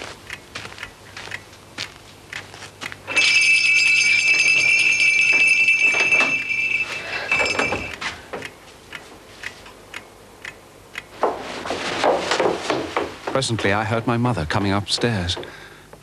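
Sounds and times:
small bell ringing: 0:03.1 - 0:08.0.

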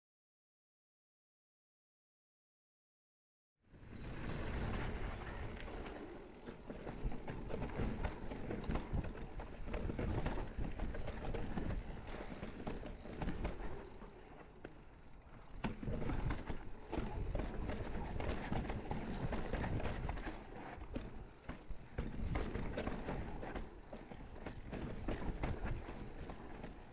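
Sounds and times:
mountain bike on rocky trail: 0:03.8 - 0:26.9
bike knocks and rattles: 0:06.5 - 0:26.9.

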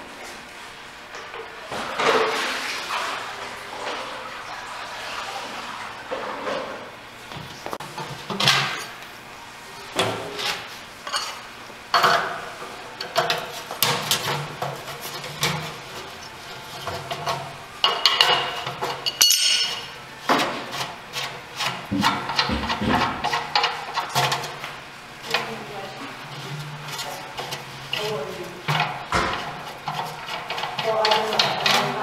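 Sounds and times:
metal clunks and scraping: 0:12.0 - 0:24.6, 0:26.2 - 0:32.0.

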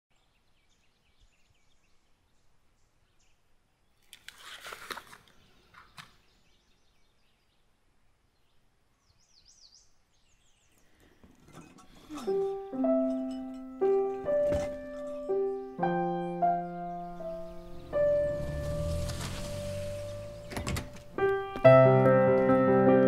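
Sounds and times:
short rustle: 0:17.8 - 0:21.4.

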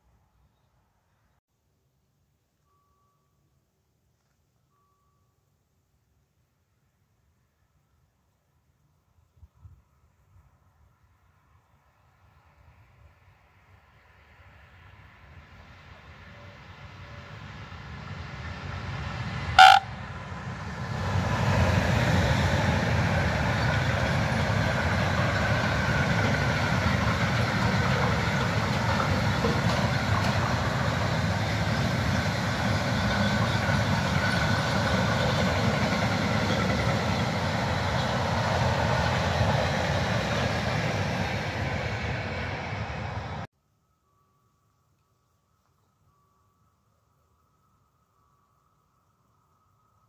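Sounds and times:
train wheels rumbling on rails: 0:15.7 - 0:43.5
locomotive horn blast: 0:19.6 - 0:19.9.

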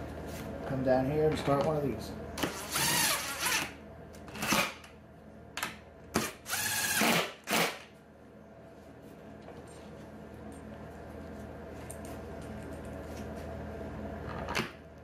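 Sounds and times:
cordless impact driver whirring: 0:02.4 - 0:03.7, 0:06.2 - 0:07.8.

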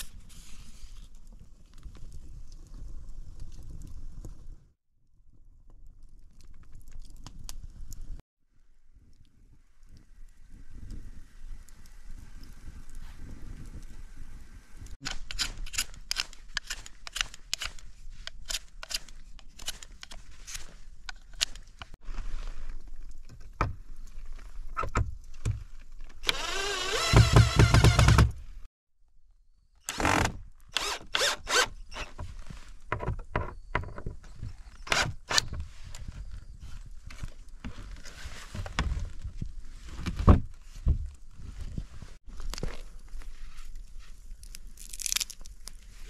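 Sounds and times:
cordless drill whirring: 0:26.2 - 0:28.2.

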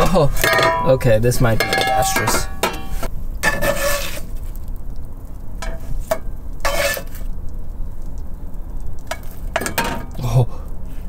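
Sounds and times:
utensil scraping a pan: 0:00.0 - 0:04.4, 0:05.6 - 0:07.3
eggs frying in a pan: 0:02.8 - 0:11.0.

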